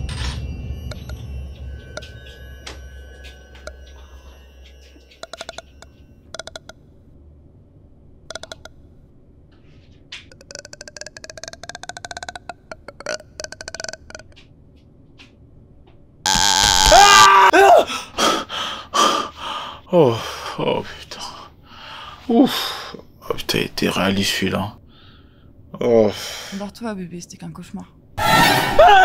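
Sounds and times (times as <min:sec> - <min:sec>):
loud shriek-like blast: 0:28.2 - 0:29.0.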